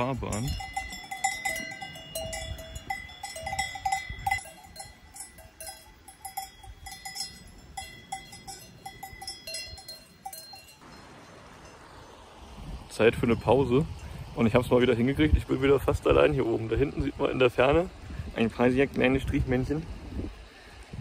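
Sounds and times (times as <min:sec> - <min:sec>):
cowbells clanking: 0:00.0 - 0:11.8.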